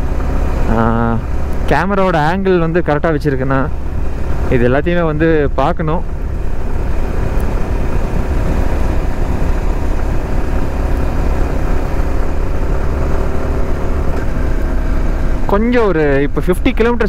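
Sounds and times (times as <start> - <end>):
motorcycle engine running: 0.0 - 17.0
wind rumble on microphone: 3.7 - 15.5.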